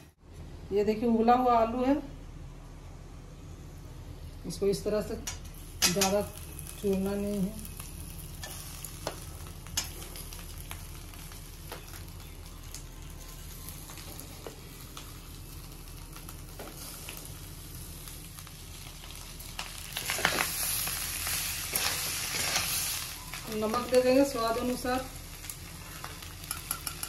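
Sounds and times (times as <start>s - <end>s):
potatoes sizzling in oil: 5.5s - 27.0s.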